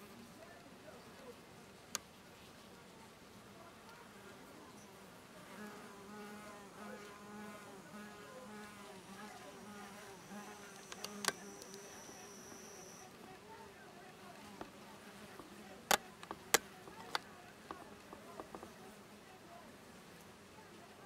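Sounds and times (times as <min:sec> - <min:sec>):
low insect buzzing: 0:05.5 - 0:13.1
thin high steady whine: 0:05.9 - 0:13.3
sharp click: 0:10.4 - 0:12.7.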